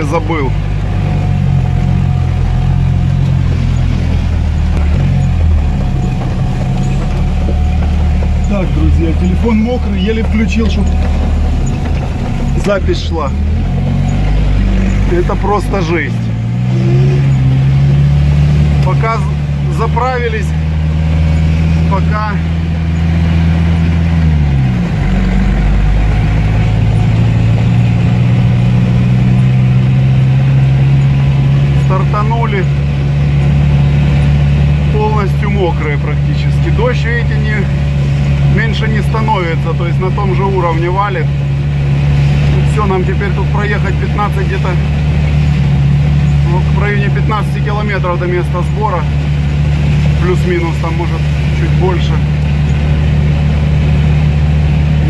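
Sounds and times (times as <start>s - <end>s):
road noise: 0.0s - 55.0s
vehicle engine drone: 0.0s - 55.0s
rain: 49.0s - 55.0s.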